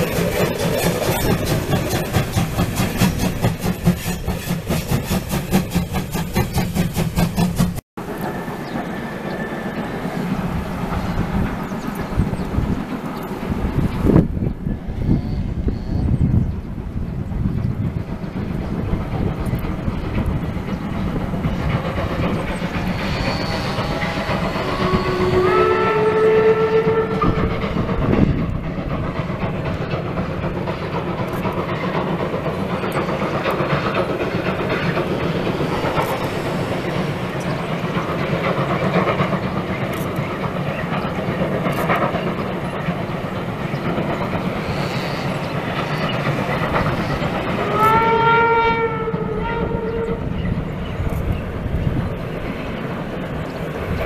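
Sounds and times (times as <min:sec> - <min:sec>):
train rumbling over steel bridge: 0:00.0 - 0:54.0
steam locomotive whistle: 0:23.0 - 0:27.6, 0:47.6 - 0:50.4.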